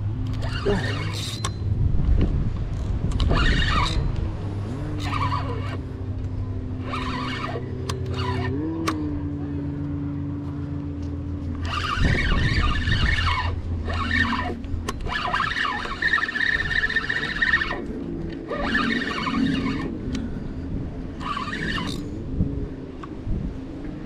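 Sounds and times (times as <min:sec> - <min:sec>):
fishing reel drag screaming: 0:00.3 - 0:01.5, 0:03.2 - 0:04.1, 0:04.7 - 0:06.0, 0:06.8 - 0:09.0, 0:11.6 - 0:20.0, 0:21.2 - 0:22.2.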